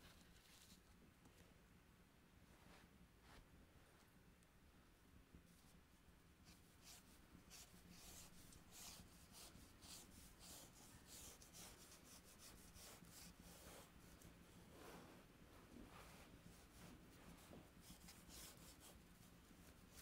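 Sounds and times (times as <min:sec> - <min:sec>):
faint low hum: 0:00.0 - 0:20.0
pencil scratching on paper: 0:06.5 - 0:14.2, 0:17.4 - 0:19.0.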